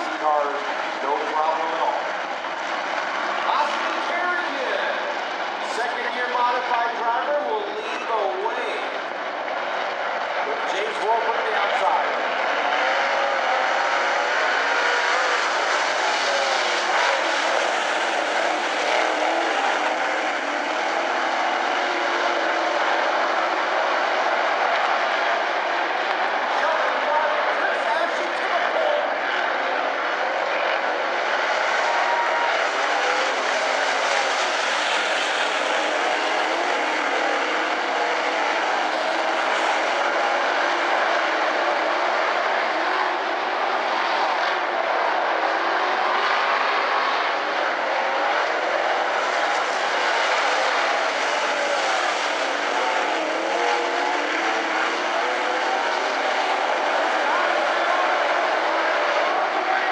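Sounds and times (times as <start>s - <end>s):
race car engines running hard: 0.0s - 59.9s.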